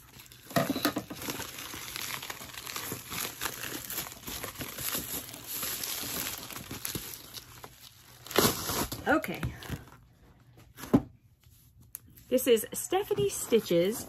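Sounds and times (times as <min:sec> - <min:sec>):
plastic mailer envelope crinkling: 0:00.0 - 0:09.9.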